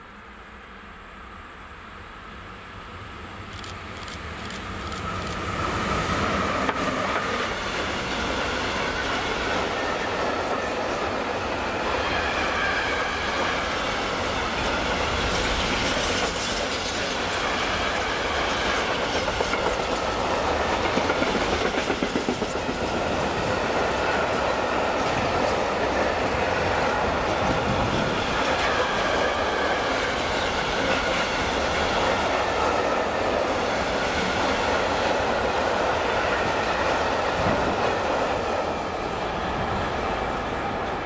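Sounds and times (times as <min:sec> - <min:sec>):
freight train wheels clattering: 0:12.0 - 0:38.9.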